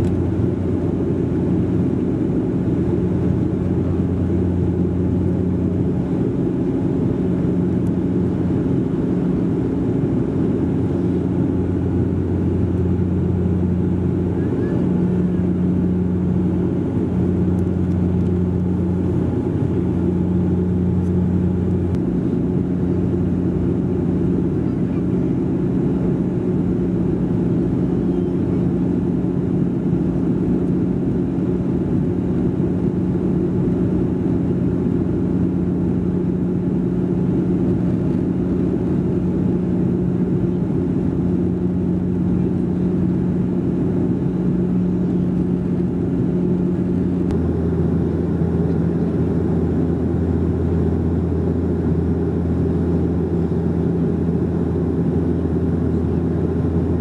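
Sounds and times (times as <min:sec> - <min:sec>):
turboprop cabin drone: 0:00.0 - 0:57.0.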